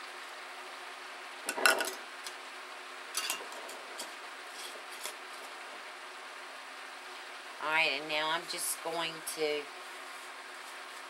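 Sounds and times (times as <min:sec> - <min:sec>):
steady low hum: 0:00.0 - 0:11.0
kitchen items clattering on table: 0:01.5 - 0:02.0, 0:03.2 - 0:05.1.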